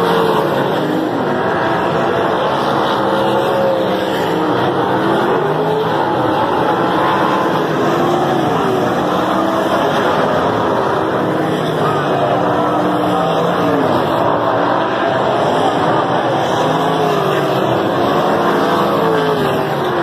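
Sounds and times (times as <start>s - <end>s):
racing car engines: 0.0s - 20.0s.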